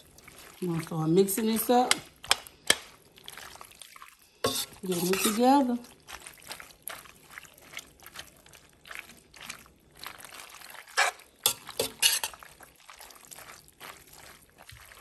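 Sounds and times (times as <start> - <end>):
pasta squelching: 0.0 - 15.0
spoon scraping pot: 4.4 - 5.7, 10.9 - 12.4.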